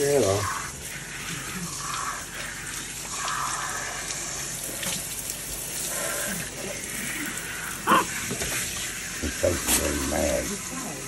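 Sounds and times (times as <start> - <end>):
faucet sprayer running: 0.0 - 11.0
water splashing into sink: 1.3 - 5.6.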